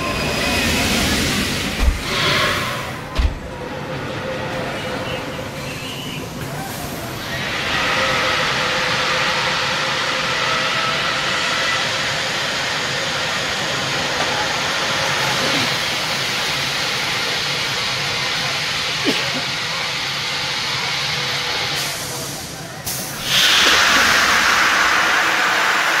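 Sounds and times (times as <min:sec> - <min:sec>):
steady hissing noise: 0:05.4 - 0:26.0.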